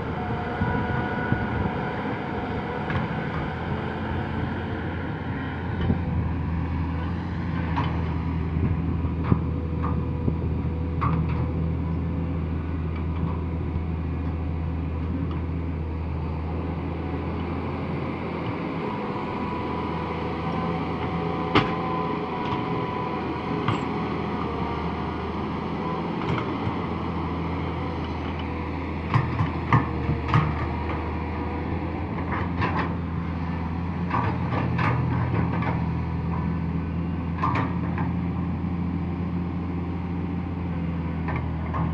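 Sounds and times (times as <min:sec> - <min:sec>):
excavator diesel engine: 0:00.0 - 0:41.9.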